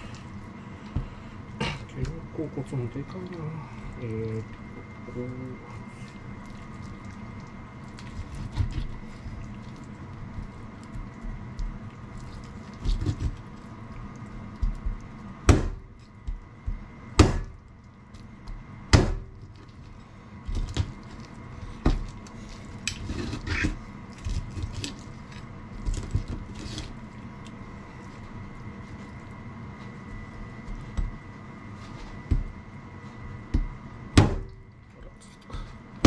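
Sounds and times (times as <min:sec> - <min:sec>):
faint steady hum: 0:00.0 - 0:36.0
heavy knife chops: 0:15.4 - 0:15.9, 0:17.2 - 0:17.6, 0:18.9 - 0:19.3, 0:34.2 - 0:34.5.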